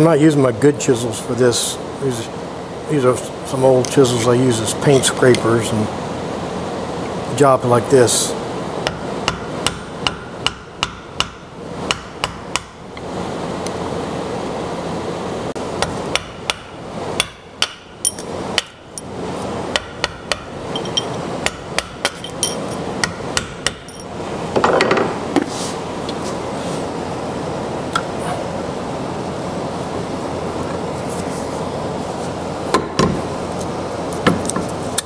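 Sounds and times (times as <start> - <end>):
hammer striking chisel: 8.9 - 12.7, 15.8 - 18.8, 19.7 - 23.9.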